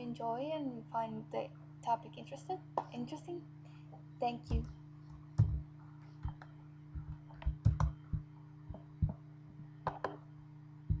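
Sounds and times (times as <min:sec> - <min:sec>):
low electrical hum: 0:00.0 - 0:11.0
laptop clicks and taps: 0:04.5 - 0:05.6, 0:06.2 - 0:09.2, 0:09.8 - 0:10.3.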